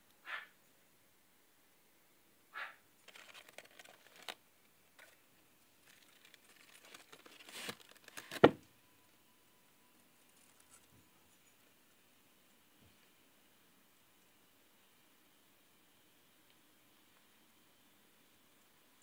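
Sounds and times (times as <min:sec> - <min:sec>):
paper towels crinkling: 0:03.0 - 0:04.4, 0:05.8 - 0:08.5.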